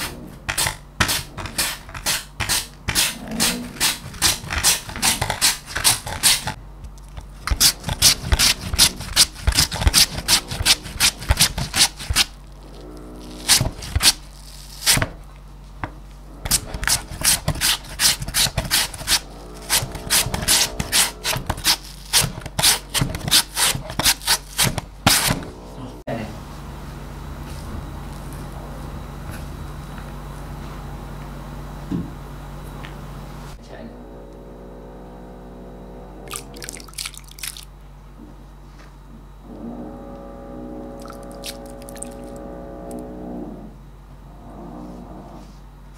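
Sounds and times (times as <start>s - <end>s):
potato rasping on grater: 0.5s - 6.6s, 7.5s - 12.5s, 13.3s - 15.1s, 16.5s - 25.4s.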